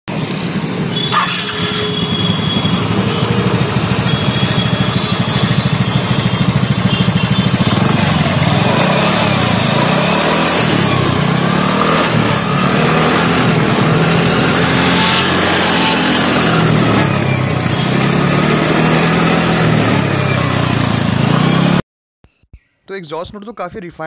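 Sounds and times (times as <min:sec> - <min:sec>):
scooter engine idling and revving: 0:00.1 - 0:21.8
sharp click: 0:01.0 - 0:01.8.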